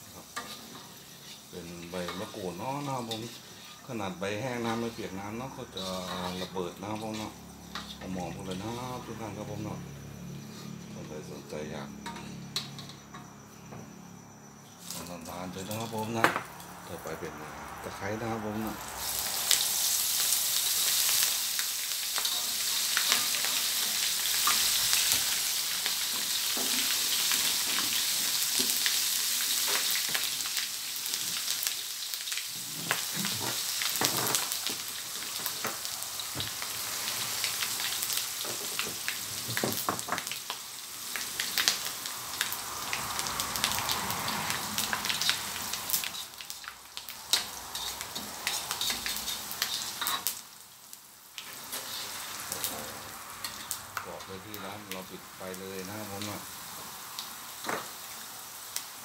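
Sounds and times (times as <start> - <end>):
lemongrass sizzling in hot oil: 0.0 - 13.4, 14.1 - 59.0
metal spatula scraping wok: 0.1 - 8.8, 10.3 - 11.0, 12.0 - 13.2, 21.6 - 28.7, 46.0 - 46.5, 47.3 - 50.3, 51.5 - 53.8.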